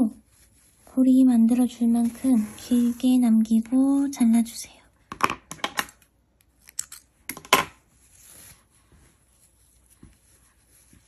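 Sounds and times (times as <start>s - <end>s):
soft rustle: 0.0s - 4.4s, 7.8s - 11.0s.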